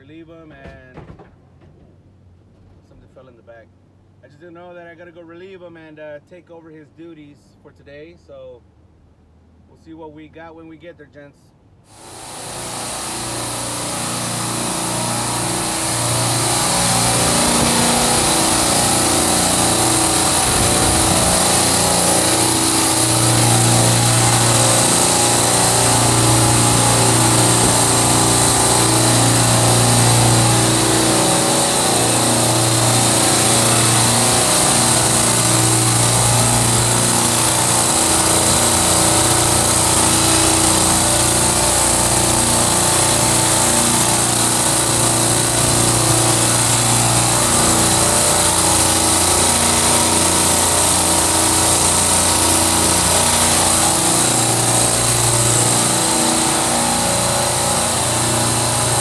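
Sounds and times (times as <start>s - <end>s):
compressors humming: 11.9s - 59.0s
even hiss: 11.9s - 59.0s.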